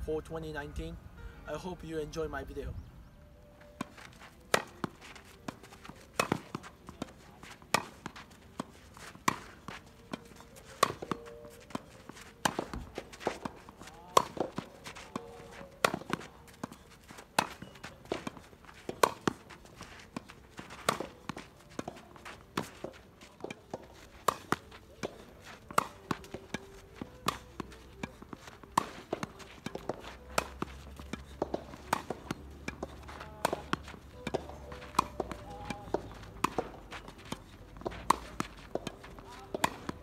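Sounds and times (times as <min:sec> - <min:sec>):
rackets striking tennis ball: 0:03.0 - 0:40.0
ball bouncing on court: 0:10.1 - 0:19.4, 0:20.8 - 0:28.2, 0:28.8 - 0:40.0.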